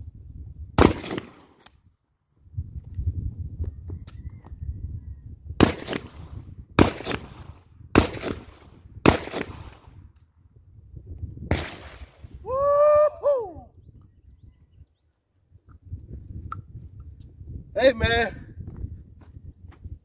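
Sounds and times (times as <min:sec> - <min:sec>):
shotgun shots: 0:00.8 - 0:01.6, 0:05.6 - 0:09.9, 0:11.5 - 0:12.2
short high falling call: 0:12.5 - 0:13.7.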